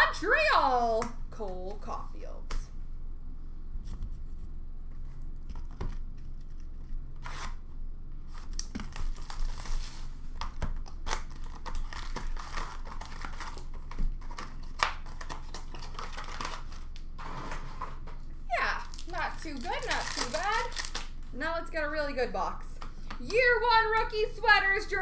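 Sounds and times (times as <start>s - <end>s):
wrapper crinkling and ripping: 8.3s - 17.2s, 18.5s - 21.3s.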